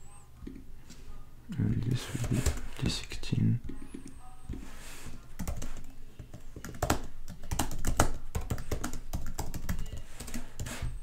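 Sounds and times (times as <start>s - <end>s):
computer keyboard typing: 5.4s - 10.8s.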